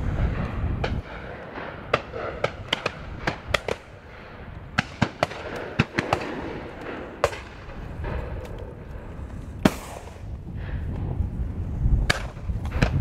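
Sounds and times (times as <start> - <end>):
low wind rumble: 0.0 - 13.0
shotguns firing: 0.8 - 8.6, 9.6 - 10.2.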